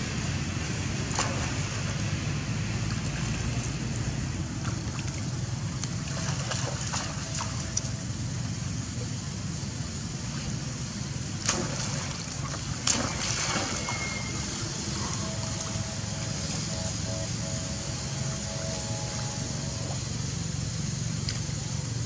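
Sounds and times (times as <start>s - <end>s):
monkeys splashing in water: 4.5s - 7.9s, 11.4s - 16.6s.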